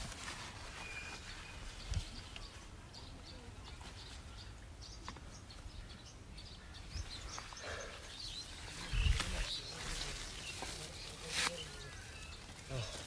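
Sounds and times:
vines and leaves rustling: 0.0s - 2.7s, 7.0s - 13.0s
microphone brushing foliage thump: 8.8s - 11.8s.

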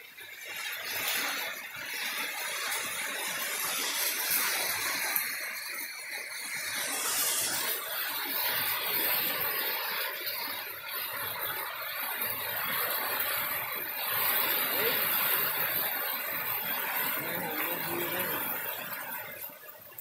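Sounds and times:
heavy rain on dirt road: 0.0s - 20.0s.

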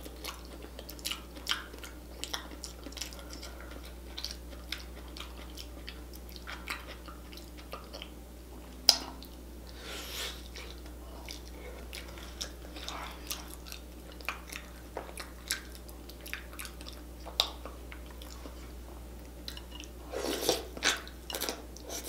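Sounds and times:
wet chewing and smacking: 0.0s - 9.4s, 10.3s - 22.0s
person slurping: 9.7s - 10.8s, 20.1s - 21.0s.

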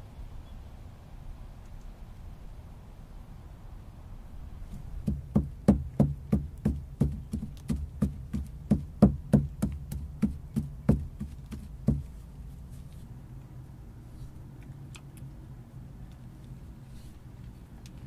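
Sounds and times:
pestle pounding in mortar: 5.0s - 12.1s.

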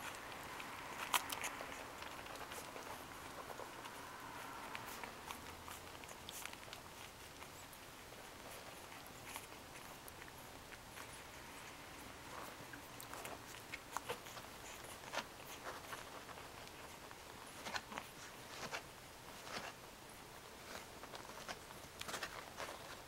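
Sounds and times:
puppies suckling: 0.0s - 23.0s.

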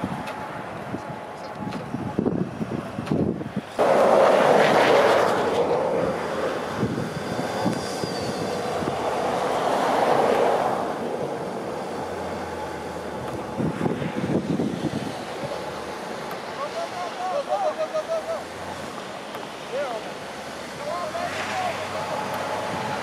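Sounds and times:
wind buffeting microphone: 0.0s - 15.9s, 22.3s - 23.0s
engine and tyres straining: 0.0s - 23.0s.

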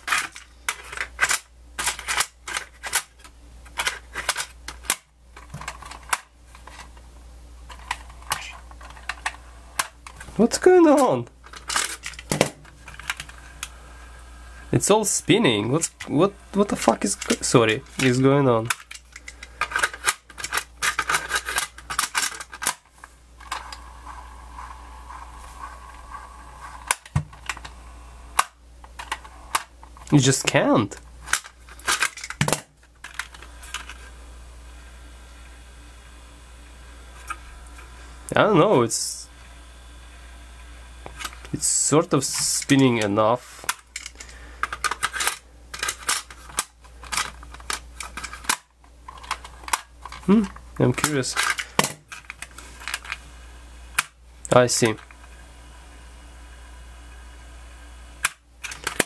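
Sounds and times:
cassette loading clicks and rattles: 15.8s - 22.8s.

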